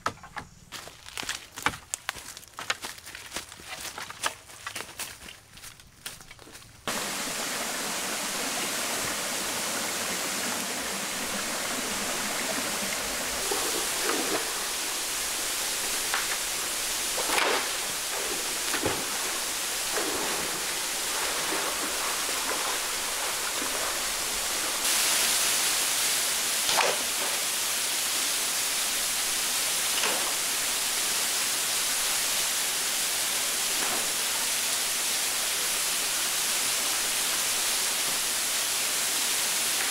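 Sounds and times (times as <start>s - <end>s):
stream rushing over rocks: 6.9s - 39.9s.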